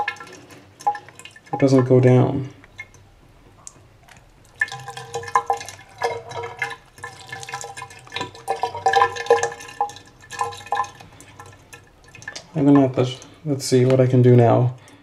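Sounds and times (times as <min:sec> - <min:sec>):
water pouring into sink: 0:00.0 - 0:14.9.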